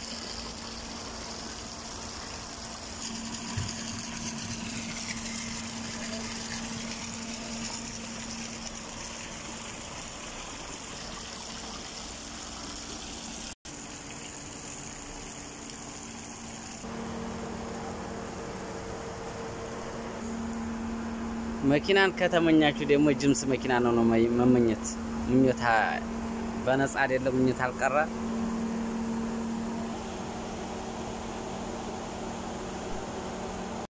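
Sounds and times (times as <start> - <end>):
water pouring into pool: 0.0 - 16.9
constant low hum: 0.0 - 33.9.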